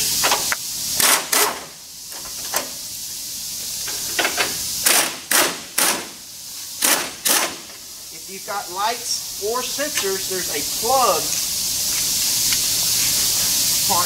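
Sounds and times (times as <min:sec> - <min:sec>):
impact wrench hammering: 0:04.8 - 0:06.2, 0:06.8 - 0:07.8.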